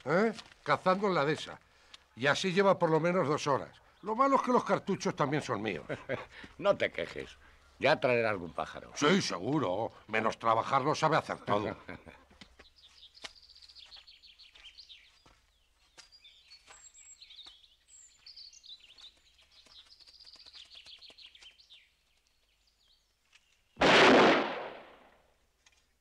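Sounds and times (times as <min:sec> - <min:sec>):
small birds chirping: 0:00.0 - 0:23.8
shotgun shot: 0:23.8 - 0:25.0.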